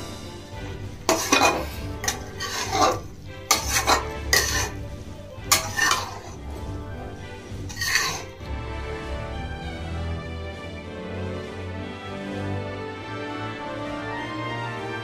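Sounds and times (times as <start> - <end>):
metal spatula scraping a pan: 0.0 - 8.5.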